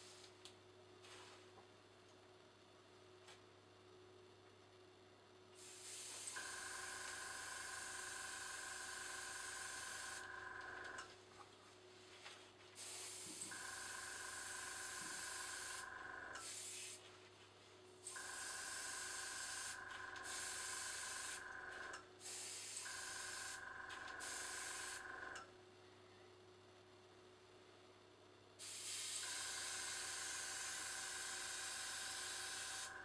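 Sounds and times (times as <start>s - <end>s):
compressor humming and whining: 0.0s - 33.0s
airbrush spraying hissing air: 5.6s - 6.4s, 12.8s - 13.6s, 16.4s - 17.0s, 18.1s - 21.4s, 22.2s - 23.6s, 24.2s - 25.0s, 28.6s - 30.5s.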